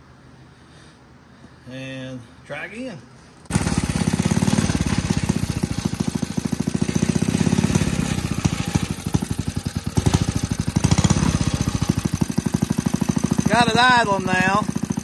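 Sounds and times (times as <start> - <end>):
single-cylinder engine running: 3.5 - 15.0.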